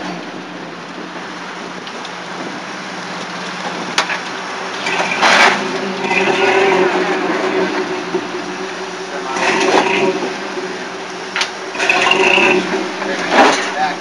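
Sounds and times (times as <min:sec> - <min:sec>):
off-road truck engine revving: 0:04.7 - 0:14.0.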